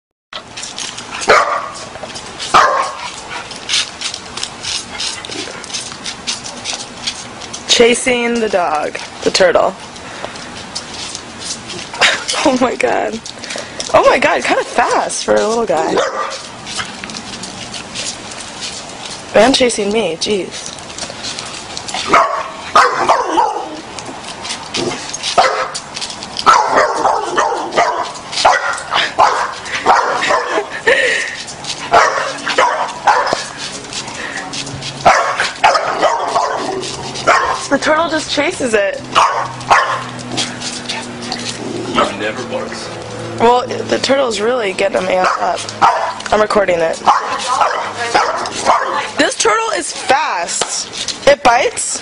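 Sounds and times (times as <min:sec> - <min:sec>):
dog barking: 0:01.3 - 0:01.8, 0:02.5 - 0:03.0, 0:16.0 - 0:16.4, 0:22.1 - 0:23.8, 0:25.4 - 0:25.8, 0:26.5 - 0:30.6, 0:31.9 - 0:33.4, 0:35.0 - 0:37.6, 0:39.2 - 0:40.1, 0:45.2 - 0:46.2, 0:47.0 - 0:49.0.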